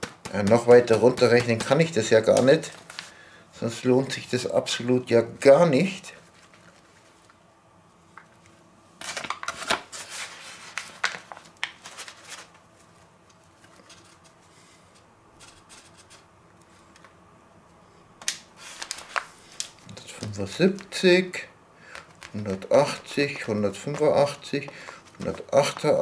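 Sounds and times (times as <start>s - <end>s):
paper bag crinkling and rustling: 9.0s - 14.4s, 18.6s - 20.9s.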